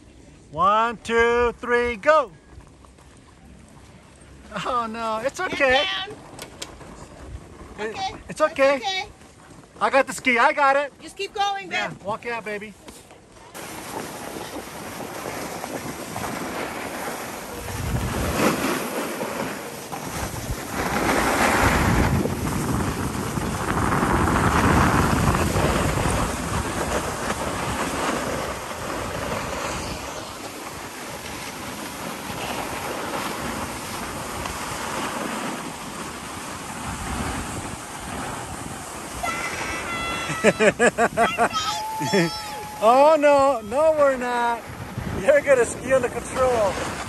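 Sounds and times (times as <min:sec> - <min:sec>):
skis hissing over snow: 0:13.6 - 0:44.9, 0:45.5 - 0:47.0
wind rushing over microphone: 0:13.6 - 0:47.0.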